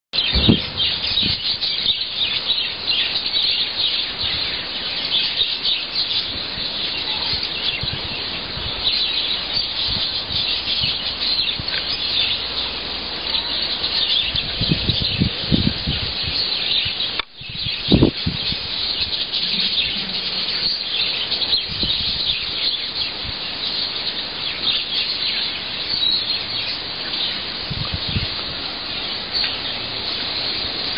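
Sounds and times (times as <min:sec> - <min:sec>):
birds chirping: 0:00.1 - 0:30.9
low thumps: 0:00.2 - 0:01.5.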